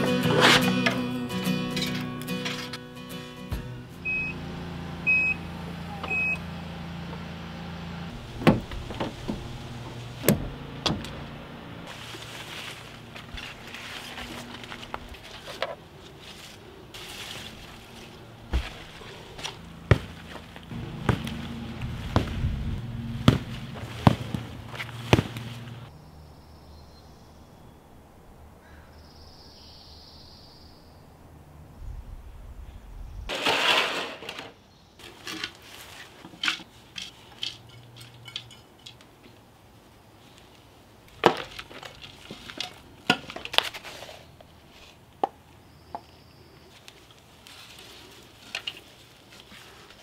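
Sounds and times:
trowel digging soil: 0.0 - 1.0
gritty rush of soil: 11.8 - 25.9, 33.3 - 36.8, 46.7 - 50.0.

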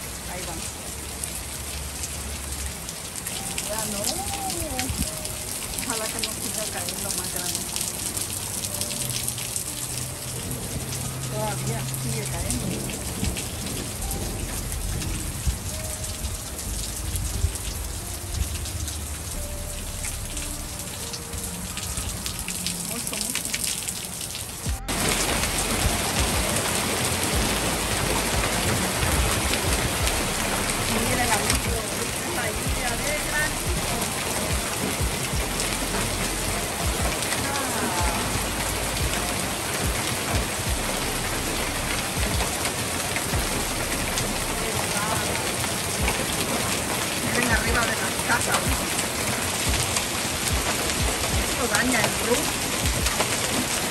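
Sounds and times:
rain and hail pattering: 0.0 - 53.9
low hail thumps: 24.6 - 38.3.

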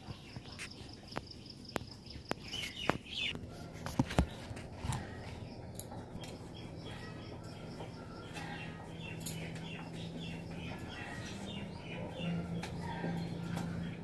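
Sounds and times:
bird chirping: 0.0 - 14.0
footsteps walking: 2.9 - 11.7.

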